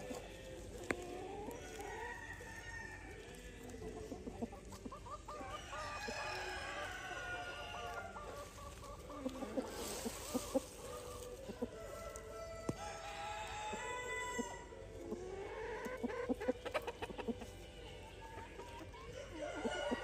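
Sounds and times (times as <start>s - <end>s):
chickens clucking: 0.0s - 20.0s
rooster crowing: 5.5s - 8.0s, 19.3s - 20.0s.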